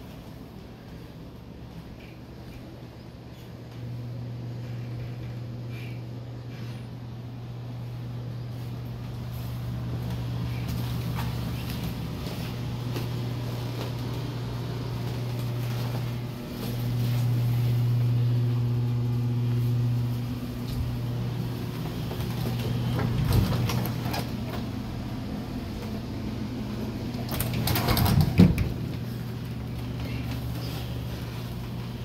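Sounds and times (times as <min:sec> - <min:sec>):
low machine hum: 0:00.0 - 0:32.0
knocks and clatter: 0:27.3 - 0:29.0.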